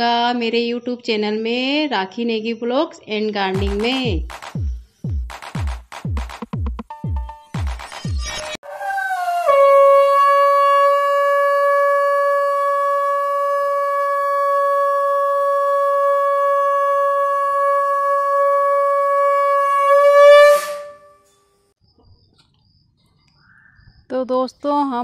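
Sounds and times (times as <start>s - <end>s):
conch shell blown: 8.6s - 21.4s.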